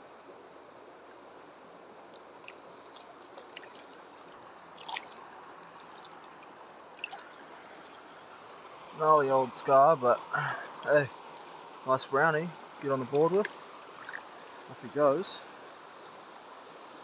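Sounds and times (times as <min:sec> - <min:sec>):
shallow river running: 0:00.0 - 0:17.0
water splashes and drips: 0:02.1 - 0:09.0, 0:10.4 - 0:14.7.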